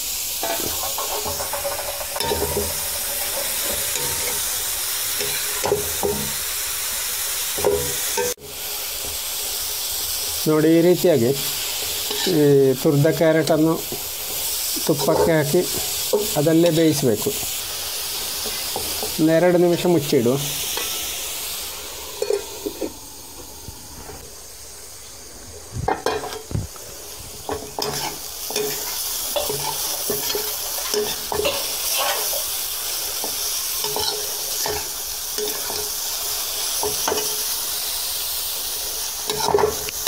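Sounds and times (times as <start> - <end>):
food sizzling in a wok: 0.0 - 40.0
spatula scraping a wok: 0.3 - 6.4, 11.4 - 19.9, 20.5 - 24.2, 27.4 - 37.6, 39.0 - 39.9
metal clanks: 0.4 - 4.4.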